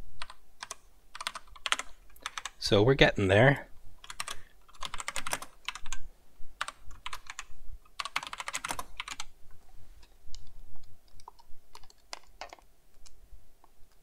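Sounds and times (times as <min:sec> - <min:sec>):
keyboard typing bursts: 0:00.2 - 0:02.6, 0:04.0 - 0:06.0, 0:06.6 - 0:09.3, 0:11.0 - 0:13.1.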